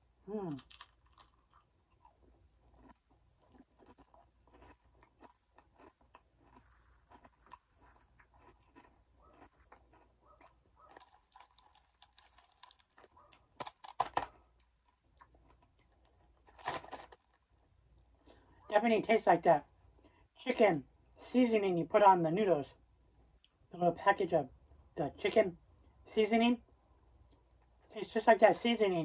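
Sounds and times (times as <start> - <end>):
chewing crunchy snacks: 0.3 - 18.6.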